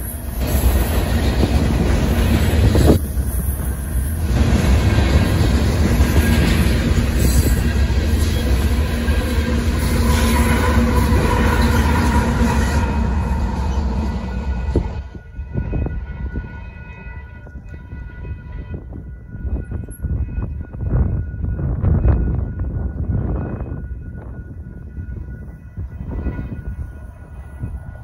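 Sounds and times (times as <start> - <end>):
locomotive engines running: 0.0 - 18.6
freight train rumbling past: 0.0 - 28.0
level crossing warning bell: 4.2 - 28.0.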